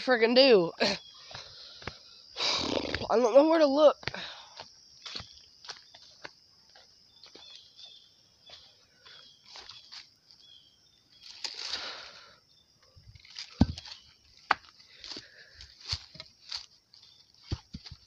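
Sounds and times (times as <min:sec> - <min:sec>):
footsteps through grass: 0:07.2 - 0:10.4, 0:13.2 - 0:18.0.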